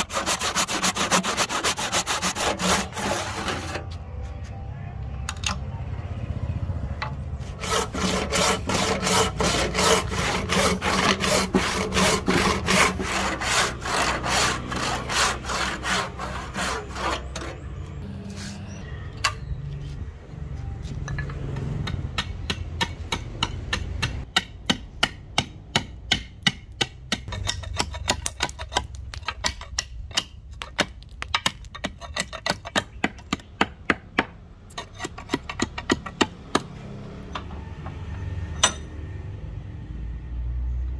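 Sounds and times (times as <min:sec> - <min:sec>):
hand saw cutting wood: 0:00.0 - 0:03.8, 0:07.4 - 0:17.7, 0:27.2 - 0:33.7, 0:34.7 - 0:36.3.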